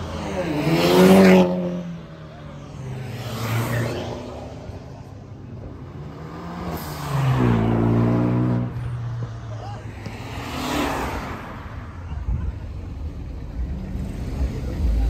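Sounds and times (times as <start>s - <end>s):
car engine revving: 0.0s - 8.9s.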